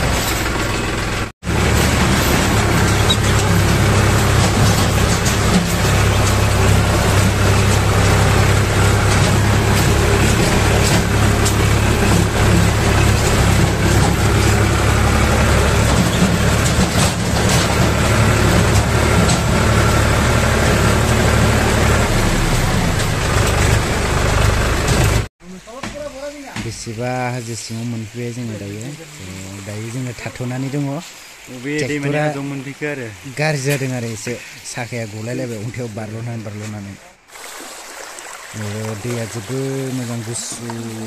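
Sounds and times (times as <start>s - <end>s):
tractor engine running: 0.0s - 25.3s.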